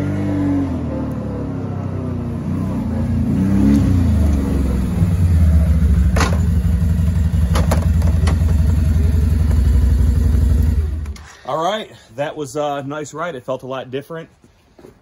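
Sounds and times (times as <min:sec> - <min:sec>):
quad bike engine idling: 0:04.0 - 0:11.4.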